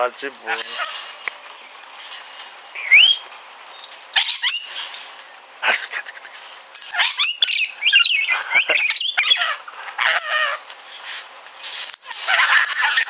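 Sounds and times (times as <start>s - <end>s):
lorikeet chattering: 6.0s - 10.6s.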